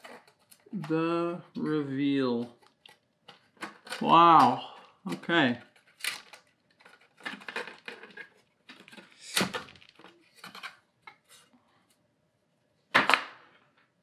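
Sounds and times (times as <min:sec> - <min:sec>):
plastic cover clicking and scraping: 0:00.0 - 0:00.7, 0:02.5 - 0:04.0, 0:05.1 - 0:11.5.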